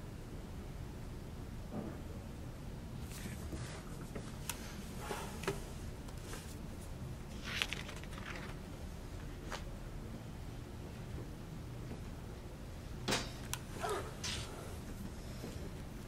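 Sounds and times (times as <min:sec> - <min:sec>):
room noise: 0:00.0 - 0:16.0
page flipping: 0:07.3 - 0:08.7
paper rustling: 0:07.3 - 0:08.7.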